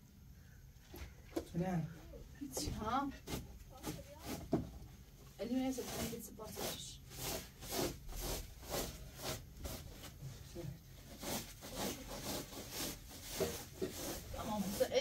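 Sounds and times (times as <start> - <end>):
rhythmic scraping strokes: 5.4 - 10.1, 11.0 - 15.0.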